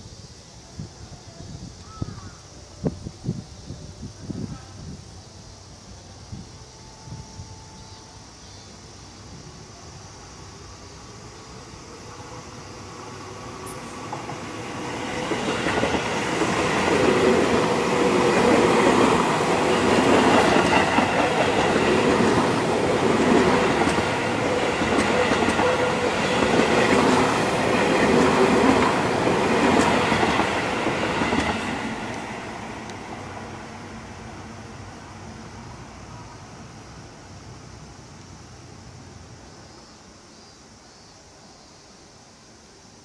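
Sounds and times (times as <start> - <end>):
train wheels rolling on rail: 9.1 - 39.2.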